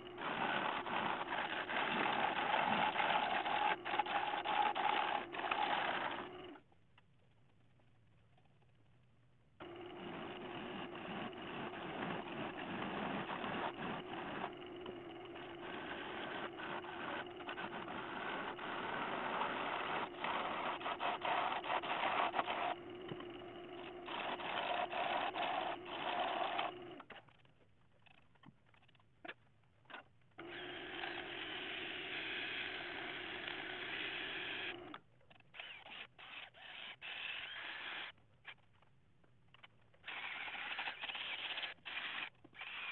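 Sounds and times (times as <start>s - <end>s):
wood lathe whirring: 0.0s - 6.6s, 9.6s - 27.1s, 30.4s - 35.0s, 35.6s - 38.1s
gouge scraping wood: 0.2s - 6.3s, 10.0s - 26.8s.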